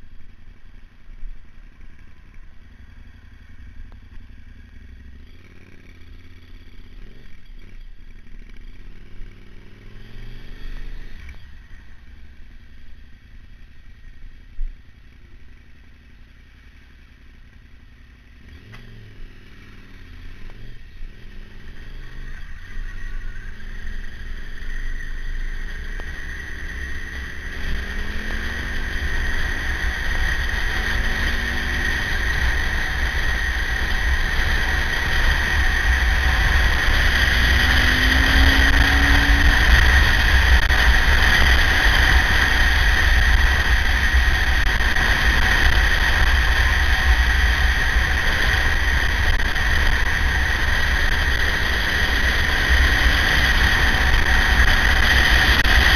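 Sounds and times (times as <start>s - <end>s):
motorcycle engine: 0.0s - 55.9s
steady high whine: 0.0s - 55.9s
deep wind rumble: 21.6s - 55.9s.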